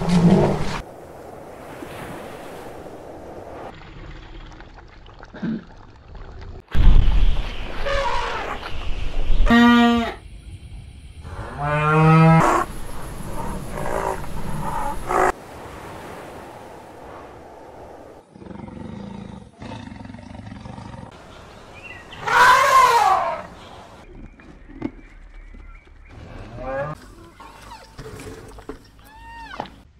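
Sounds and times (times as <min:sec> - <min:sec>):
elephants trumpeting: 0:22.2 - 0:23.5.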